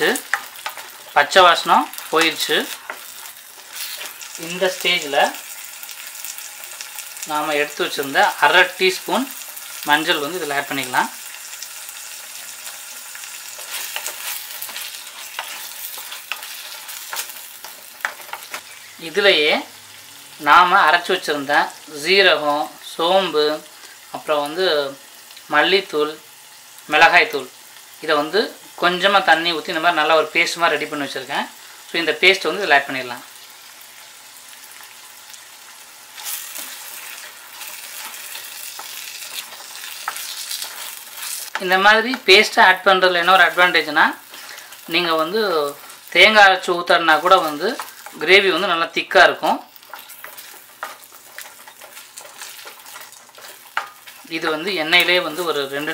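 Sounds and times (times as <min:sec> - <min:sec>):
onions sizzling in oil: 0:00.0 - 0:55.9
wooden spatula scraping: 0:01.9 - 0:04.8, 0:12.4 - 0:18.8, 0:36.2 - 0:41.8, 0:49.7 - 0:55.9
spatula scraping and knocking pan: 0:13.4 - 0:18.6, 0:49.8 - 0:54.3.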